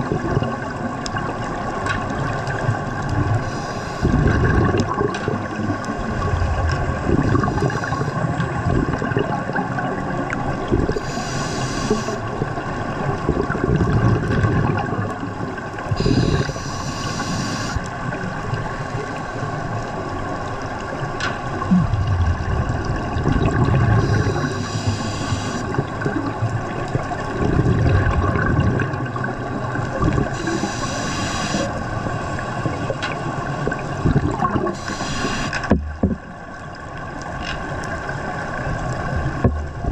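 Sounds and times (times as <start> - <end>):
exhaled bubbles gurgling: 0.0 - 39.9
regulator inhale hiss: 3.4 - 4.2, 10.9 - 12.3, 16.0 - 17.9, 24.0 - 25.7, 30.3 - 31.8, 34.7 - 35.7
steady hum: 6.0 - 8.8, 21.6 - 25.8.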